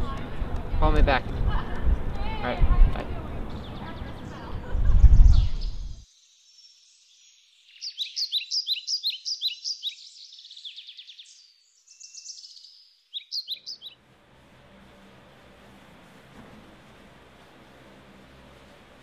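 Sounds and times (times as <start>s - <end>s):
songbirds chirping: 0.0s - 14.0s.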